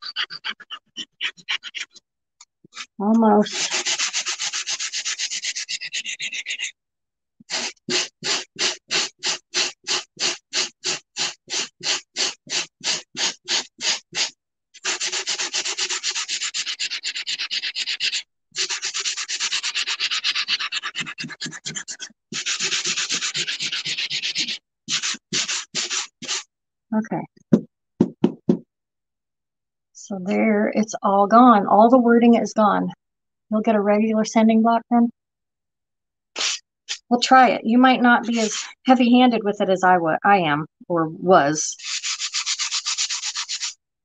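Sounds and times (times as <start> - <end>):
sanding block scraping tile: 0.0 - 2.0, 2.8 - 6.7, 7.5 - 26.4, 36.4 - 37.1, 38.2 - 38.8, 41.8 - 43.8.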